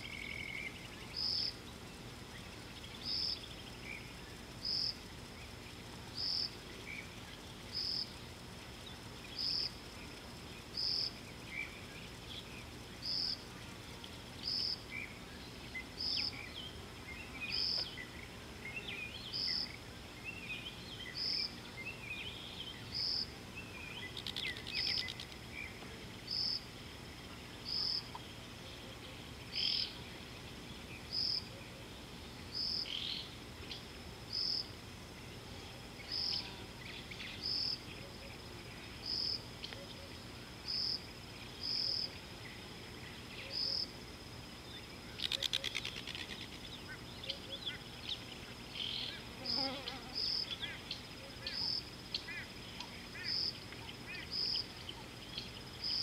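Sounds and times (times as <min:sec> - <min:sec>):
bird twitters: 0:22.3 - 0:25.8, 0:45.1 - 0:47.8.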